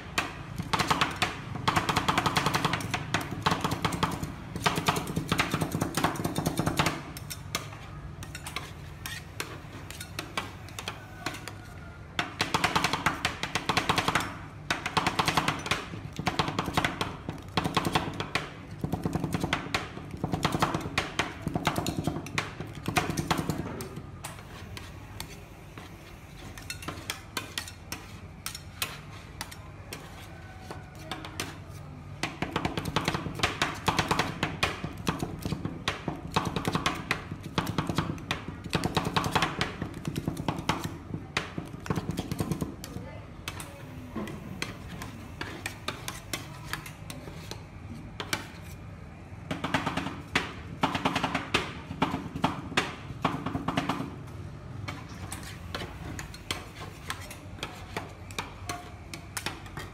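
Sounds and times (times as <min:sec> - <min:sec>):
metal spatulas tapping on steel: 0:00.2 - 0:15.8, 0:26.4 - 0:31.6, 0:55.7 - 0:59.9.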